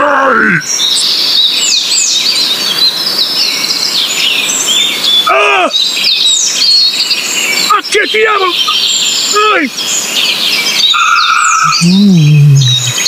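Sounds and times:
small birds chirping: 0.4 - 13.0
short bird cry: 10.8 - 13.0.

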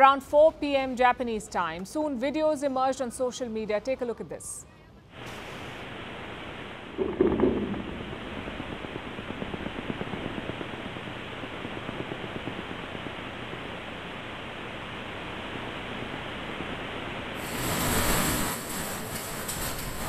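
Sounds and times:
fast irregular crackle: 5.2 - 20.0
rushing rumbling noise: 5.9 - 20.0.

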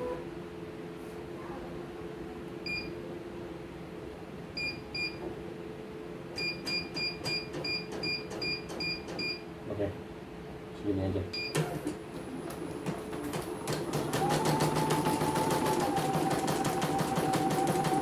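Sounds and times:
key-press beeps: 6.4 - 9.4, 11.4 - 11.7.

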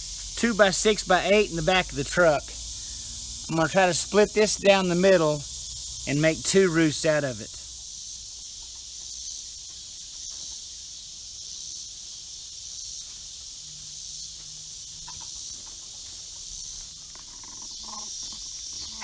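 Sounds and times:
high-pitched insect drone: 0.0 - 19.0
chickens clucking: 14.9 - 16.4
chickens calling: 14.9 - 19.0.

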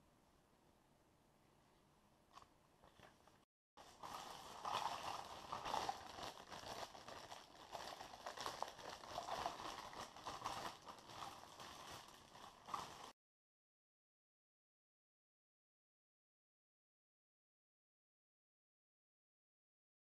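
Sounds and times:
plastic bag crinkling: 2.9 - 13.2.

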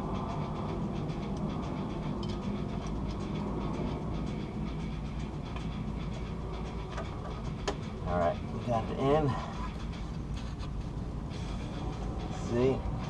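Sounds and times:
low background rumble: 0.0 - 13.0
bolt ticking and scraping: 5.5 - 11.0.

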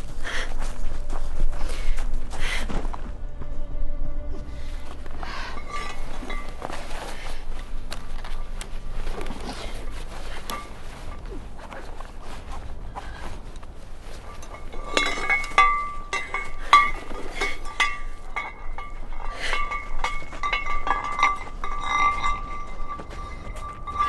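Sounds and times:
backpack rustling: 4.5 - 15.6
metal gear clinking: 14.2 - 24.0.

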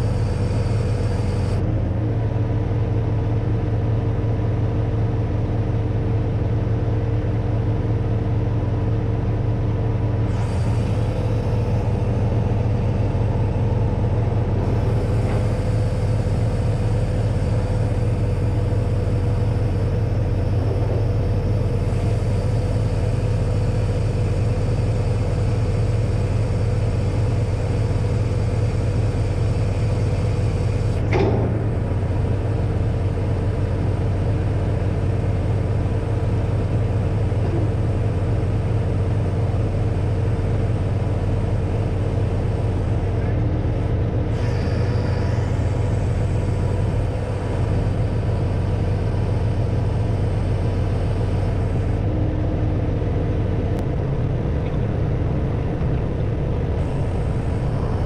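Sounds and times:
diesel engine running: 0.0 - 58.0
hydraulic whine: 0.0 - 58.0.

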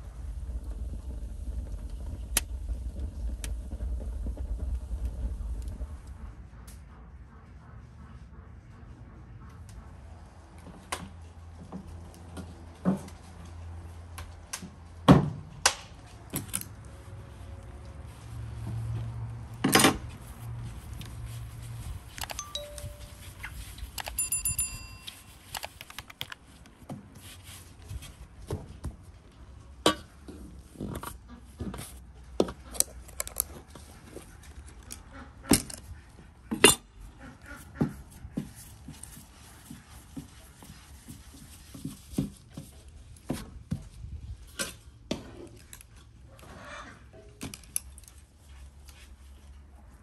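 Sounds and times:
short steady high tone: 22.2 - 25.5.

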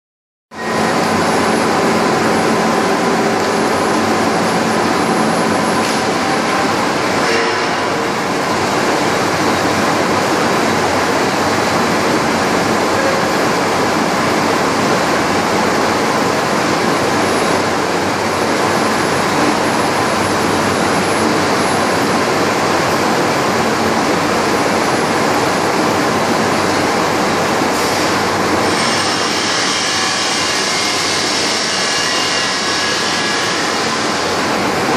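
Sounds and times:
steel rolling mill machinery: 0.6 - 34.9.

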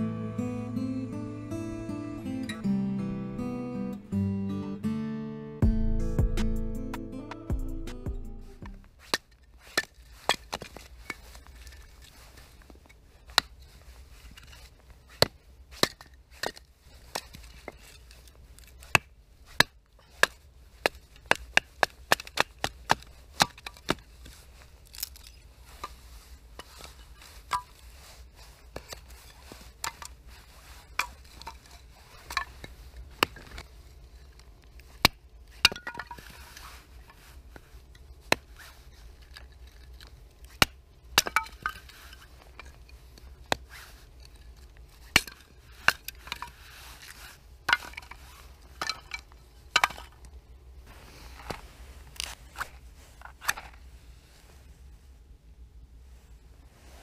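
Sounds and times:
knife splitting wood: 14.5 - 25.4.

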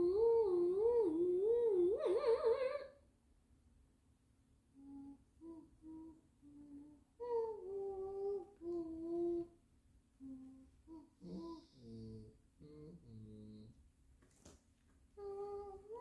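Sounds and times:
person humming: 0.0 - 2.9, 4.8 - 9.6, 10.2 - 13.8, 15.2 - 16.0.

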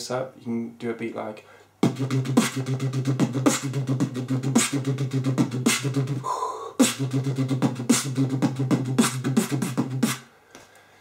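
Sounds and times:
beatboxed hummed bass: 1.8 - 10.3
beatboxed kick and snare: 1.8 - 10.3.

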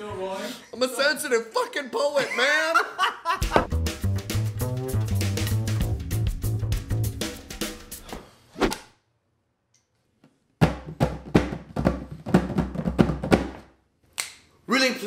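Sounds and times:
background music: 3.3 - 8.1
hand drum slaps and bass tones: 3.4 - 7.6.

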